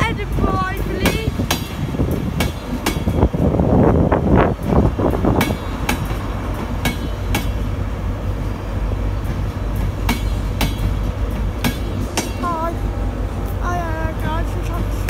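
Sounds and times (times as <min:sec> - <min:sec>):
train rumble: 0:00.0 - 0:15.0
train wheels clacking over rail joints: 0:00.1 - 0:03.4, 0:04.7 - 0:07.8, 0:09.1 - 0:12.6.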